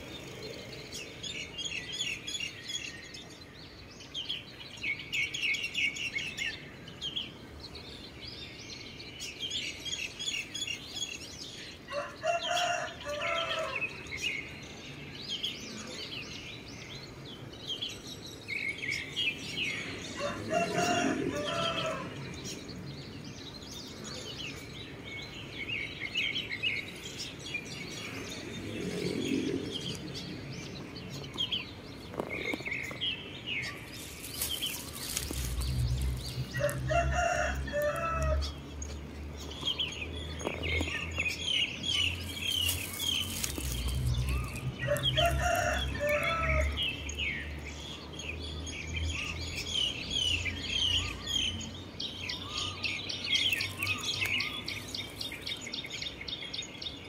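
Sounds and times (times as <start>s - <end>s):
small birds chirping: 0.0s - 57.0s
rooster crowing: 11.9s - 13.9s, 20.1s - 22.3s, 36.0s - 38.6s, 43.8s - 46.9s.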